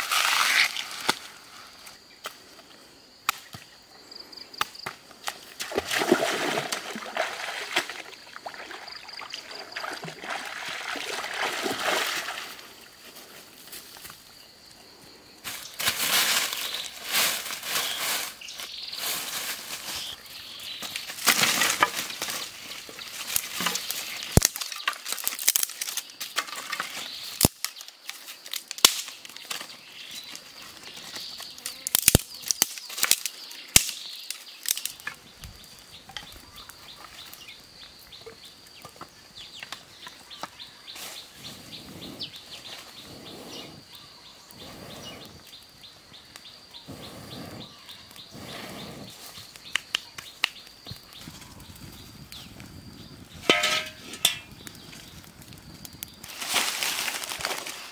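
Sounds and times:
dry leaves and twigs rustling: 0:00.0 - 0:02.7, 0:11.0 - 0:41.4, 0:49.3 - 0:57.9.

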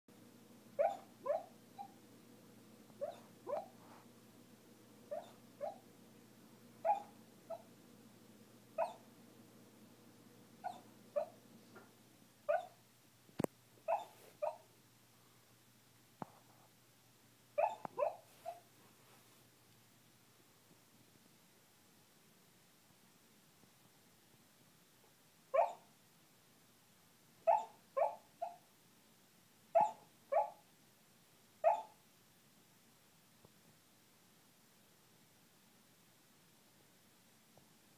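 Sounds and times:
puppy yipping in sleep: 0:00.8 - 0:02.0, 0:03.0 - 0:03.8, 0:05.1 - 0:05.8, 0:06.8 - 0:07.7, 0:08.8 - 0:09.0, 0:10.6 - 0:11.4, 0:12.5 - 0:12.8, 0:13.9 - 0:14.6, 0:17.6 - 0:18.7, 0:25.6 - 0:25.9, 0:27.5 - 0:28.6, 0:29.8 - 0:30.6, 0:31.6 - 0:32.0.

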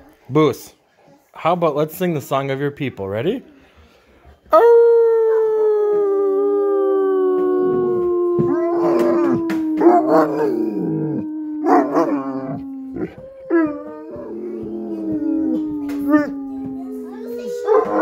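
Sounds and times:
dog howling: 0:04.5 - 0:18.0
wavering dog cries: 0:04.5 - 0:18.0.

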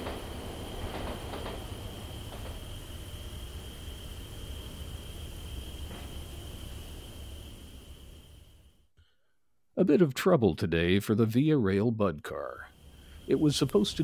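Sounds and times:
model train rumbling on track: 0:00.0 - 0:08.4, 0:13.1 - 0:14.0
constant high-pitched tone: 0:09.8 - 0:14.0.

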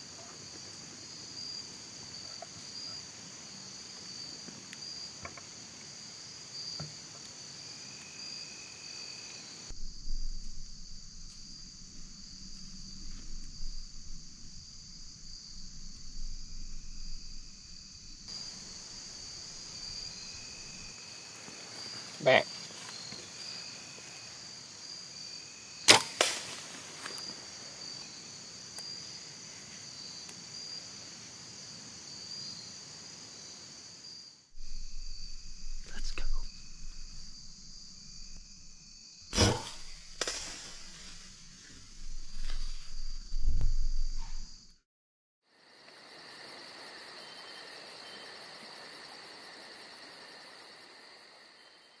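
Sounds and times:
insects trilling: 0:00.0 - 0:44.7, 0:45.5 - 0:52.0
crickets chirping: 0:00.0 - 0:44.8, 0:45.4 - 0:52.0
arrow striking deer: 0:25.9 - 0:27.2, 0:39.3 - 0:42.8
bow shot crack: 0:25.9 - 0:27.2, 0:39.3 - 0:44.5.

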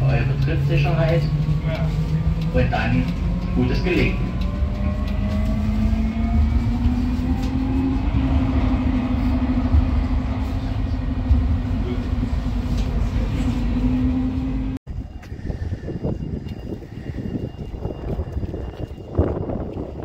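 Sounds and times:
wheels rumbling on rail: 0:00.0 - 0:20.0.

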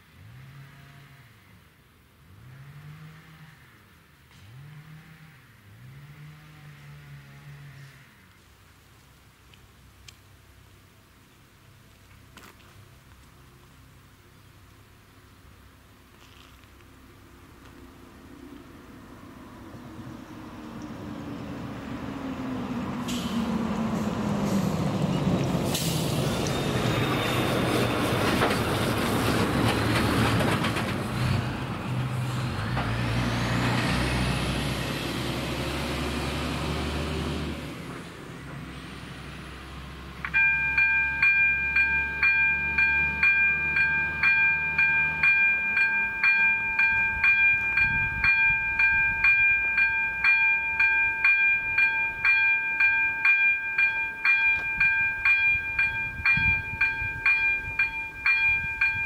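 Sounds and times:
dump truck diesel engine: 0:17.3 - 0:52.2
crossing warning bell ringing: 0:26.1 - 0:28.4, 0:40.2 - 0:59.0.

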